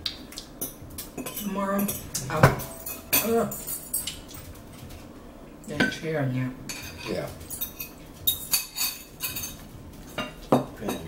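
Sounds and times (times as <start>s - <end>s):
cutlery clinking on plates: 0.6s - 4.6s, 6.7s - 11.0s.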